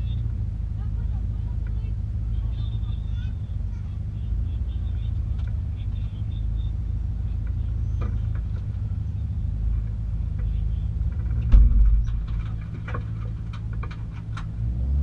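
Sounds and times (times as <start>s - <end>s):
car engine idling: 0.0s - 15.0s
sharp knock: 11.4s - 12.4s.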